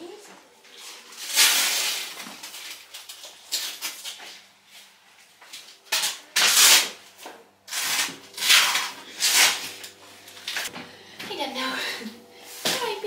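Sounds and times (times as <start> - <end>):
velcro tearing: 1.1 - 4.2, 5.9 - 9.9.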